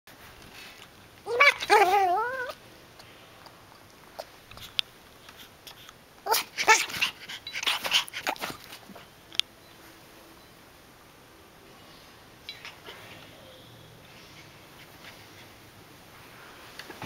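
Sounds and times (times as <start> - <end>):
puppy whining: 1.3 - 2.6, 6.2 - 9.1.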